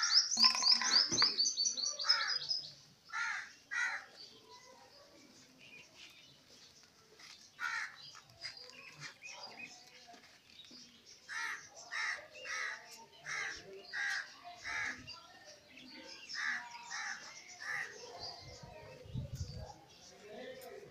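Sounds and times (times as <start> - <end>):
small birds chirping: 0.0 - 20.9
crow cawing: 3.1 - 4.0.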